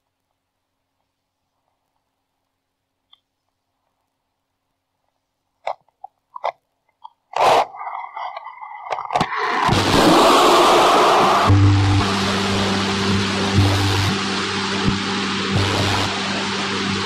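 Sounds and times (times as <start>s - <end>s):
loud static hiss: 7.3s - 17.0s
loud crackling jolt: 9.4s - 11.1s.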